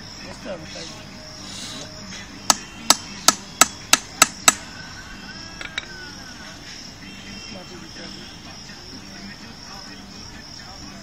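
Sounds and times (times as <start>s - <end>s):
tool strikes on metal ringing: 2.5s - 4.6s.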